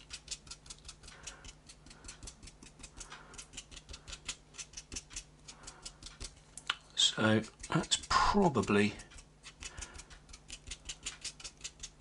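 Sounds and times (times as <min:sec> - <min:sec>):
paintbrush scratchy strokes: 0:07.0 - 0:12.0.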